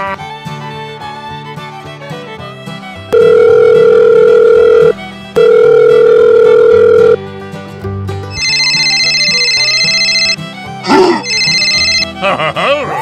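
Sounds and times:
country music: 0.0s - 13.0s
telephone ringing tone beeps: 3.1s - 7.2s, 8.3s - 10.4s, 11.2s - 12.1s.

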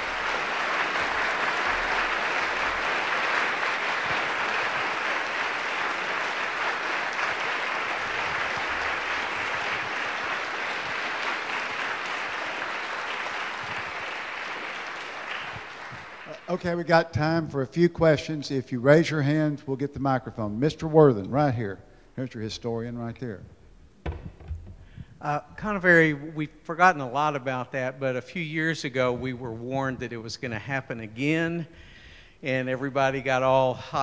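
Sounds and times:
audience applauding: 0.0s - 16.8s.

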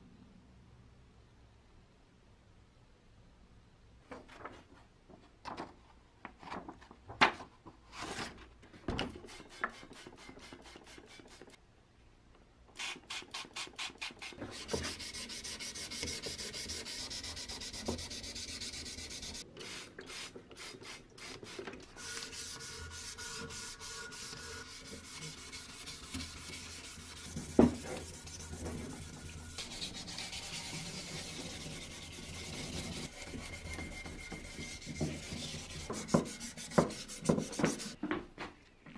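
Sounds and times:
sandpaper rubbing on metal: 13.1s - 19.4s, 20.9s - 38.0s.

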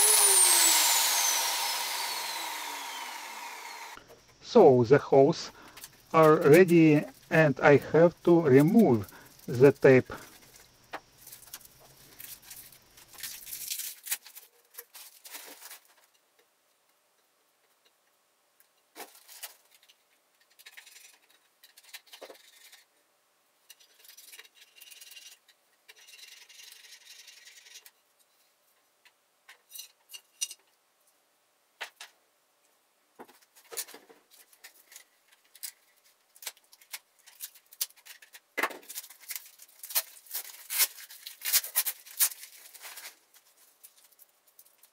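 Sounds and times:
duct tape peeling off glass: 36.4s - 43.2s.

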